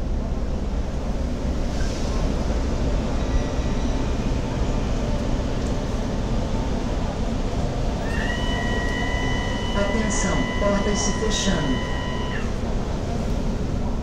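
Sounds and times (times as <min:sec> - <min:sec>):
subway car rumble and hiss: 0:00.0 - 0:14.0
two-tone electronic chime: 0:08.4 - 0:12.6.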